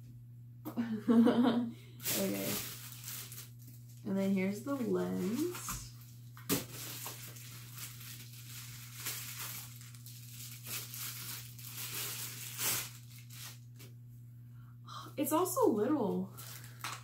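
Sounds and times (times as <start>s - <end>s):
plastic bag crinkling: 2.0s - 13.9s, 16.3s - 17.0s.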